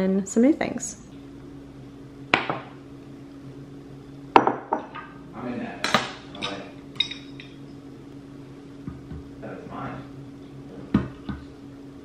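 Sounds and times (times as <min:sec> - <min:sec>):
ceramic knocking on wooden tray: 0:02.4 - 0:02.7, 0:04.4 - 0:04.9.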